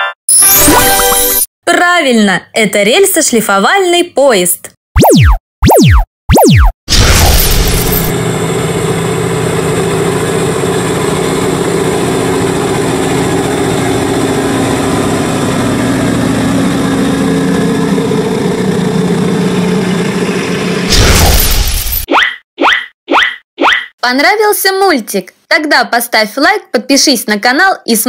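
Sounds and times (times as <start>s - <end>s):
loud burst of sound: 5.1s - 10.2s, 11.4s - 22.1s
diesel engine running: 7.7s - 21.5s.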